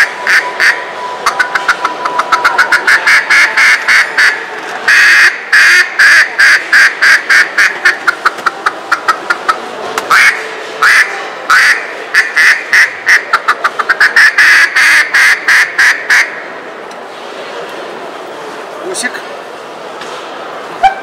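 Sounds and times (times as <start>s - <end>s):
duck call quacks: 0.0s - 16.4s.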